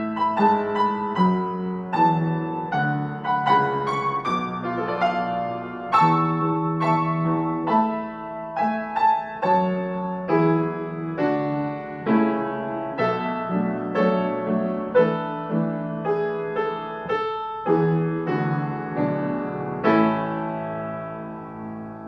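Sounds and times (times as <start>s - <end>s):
gentle solo piano: 0.0s - 22.0s.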